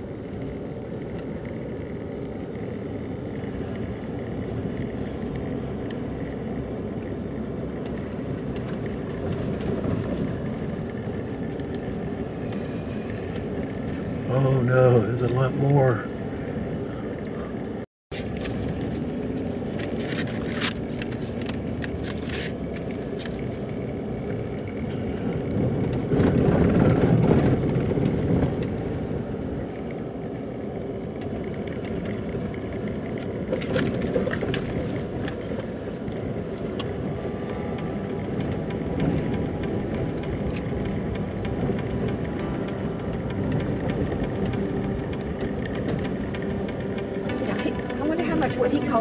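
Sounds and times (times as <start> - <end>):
engine and tyres rumbling: 0.0 - 49.0
rattles and clicks: 18.2 - 28.9, 30.7 - 49.0.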